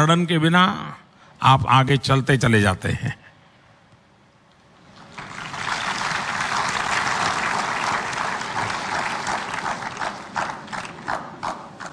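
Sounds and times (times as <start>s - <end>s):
audience applauding: 5.1s - 11.9s.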